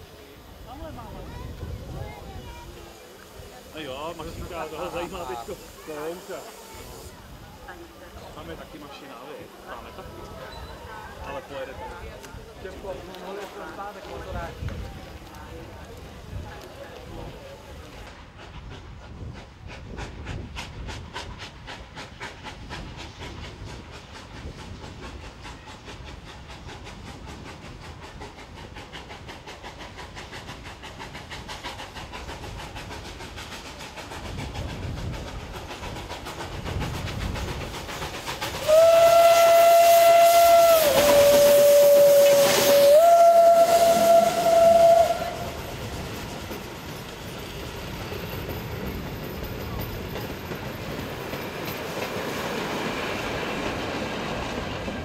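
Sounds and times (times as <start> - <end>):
steam locomotive chuffing: 0.0 - 55.0
steam whistle blast: 38.6 - 45.7
carriages rolling past: 43.7 - 55.0.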